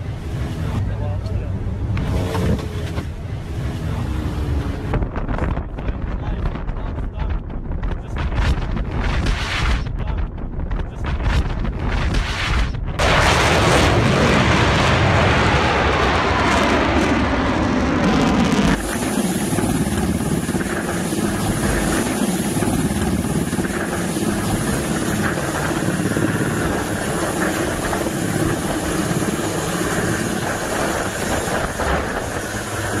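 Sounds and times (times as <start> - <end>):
fighter jet passing overhead: 12.3 - 33.0
helicopter hovering: 17.4 - 33.0.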